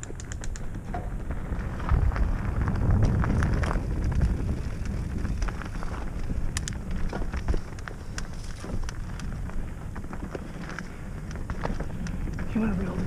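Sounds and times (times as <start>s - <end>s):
bike clicks and rattles: 0.0s - 13.0s
bike tyres rumbling on dirt: 0.0s - 13.0s
wind on microphone: 0.0s - 13.0s.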